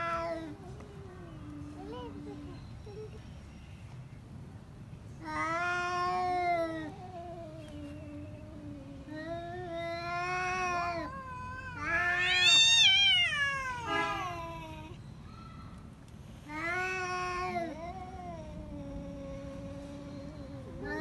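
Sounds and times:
cats yowling: 0:00.0 - 0:02.5, 0:05.2 - 0:15.0, 0:16.5 - 0:21.0.

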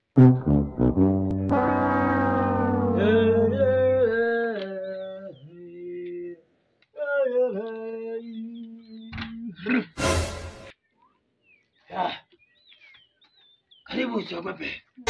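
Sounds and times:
low drone: 0:00.0 - 0:04.2
wordless chant-like singing: 0:03.0 - 0:09.6.

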